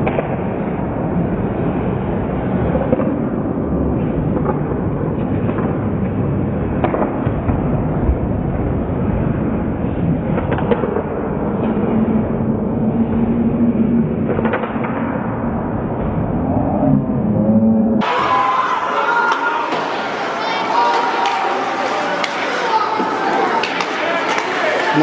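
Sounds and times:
arena ambience: 0:00.0 - 0:25.0
low steady hum: 0:15.1 - 0:18.0
hockey sticks clacking on puck: 0:20.9 - 0:24.9.

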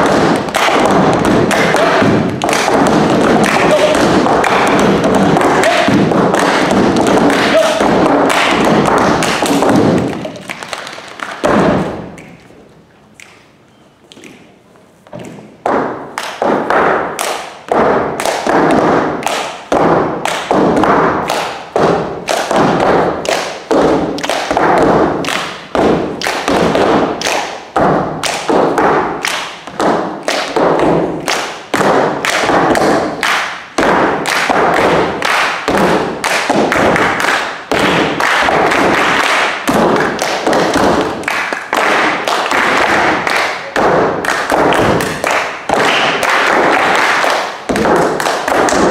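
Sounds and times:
body slaps: 0:00.0 - 0:12.4
foot stomps: 0:00.0 - 0:12.6, 0:14.1 - 0:48.9
hands clapping: 0:00.0 - 0:14.5, 0:15.1 - 0:48.9.

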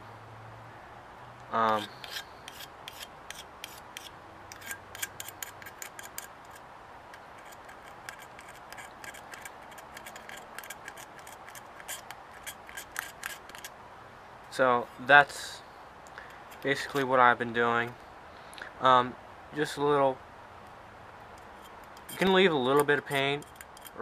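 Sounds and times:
razor blade scraping paint: 0:01.6 - 0:06.6, 0:07.2 - 0:13.7, 0:21.6 - 0:24.0.

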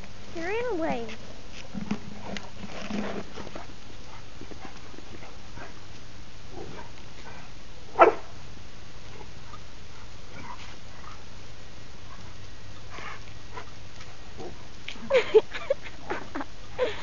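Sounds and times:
steady background hum: 0:00.0 - 0:17.0
dog barking: 0:08.0 - 0:08.3.

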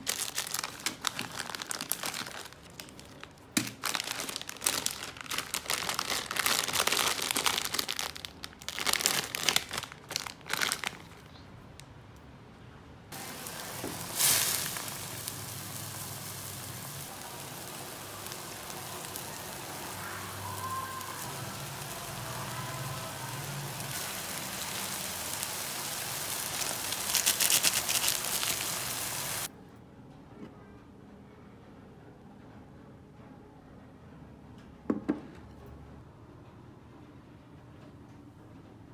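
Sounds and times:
plastic packet crinkling: 0:00.0 - 0:11.4, 0:23.9 - 0:29.5
noodles hissing in a pot: 0:13.2 - 0:29.5.

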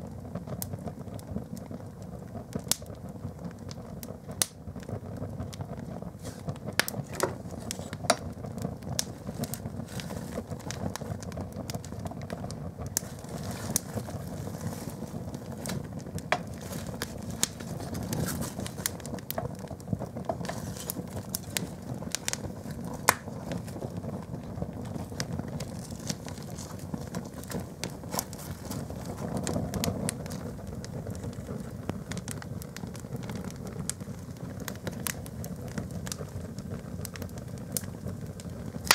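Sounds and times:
fire crackling and popping: 0:00.0 - 0:38.9
fire flames burning: 0:00.0 - 0:38.9.

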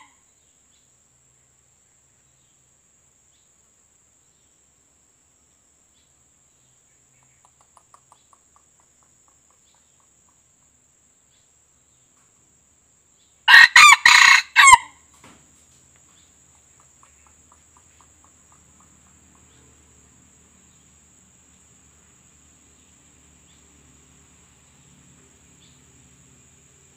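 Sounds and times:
faint rapid ticking calls: 0:04.5 - 0:13.4, 0:15.8 - 0:26.9
rooster crowing: 0:13.5 - 0:15.0.

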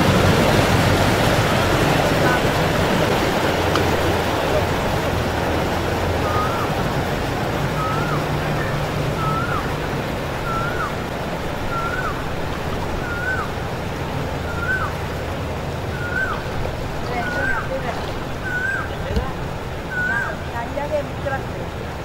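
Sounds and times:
floodwater rushing: 0:00.0 - 0:22.0
truck engine humming: 0:00.0 - 0:22.0
bird whistling: 0:06.2 - 0:06.8, 0:07.8 - 0:09.8, 0:10.4 - 0:11.0, 0:11.6 - 0:12.4, 0:13.0 - 0:13.6, 0:14.5 - 0:15.0, 0:15.9 - 0:17.7, 0:18.4 - 0:20.4.

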